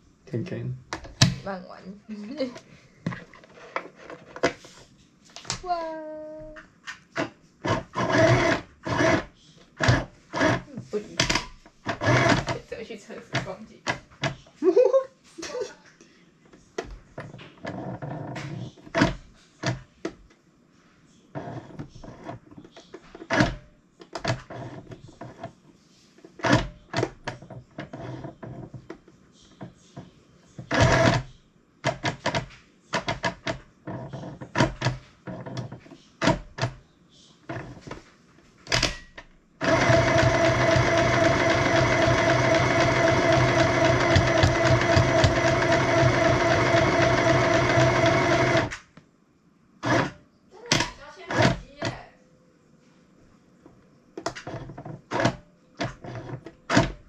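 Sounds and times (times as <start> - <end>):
sewing machine motor stitching: 7.7 - 10.7, 11.9 - 12.6, 30.7 - 31.3, 39.6 - 48.8, 49.8 - 50.2
sewing machine clicks and knocks: 38.7 - 48.8.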